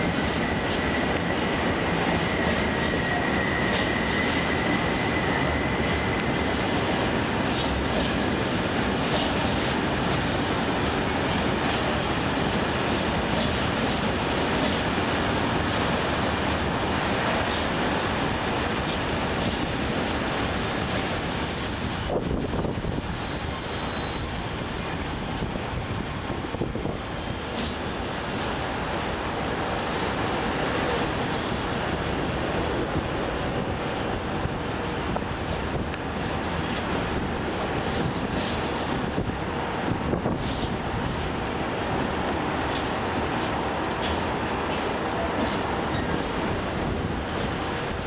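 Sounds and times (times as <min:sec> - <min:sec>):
train wheels rumbling on rails: 0:00.0 - 0:48.0
high-pitched wheel squeal: 0:17.8 - 0:30.2.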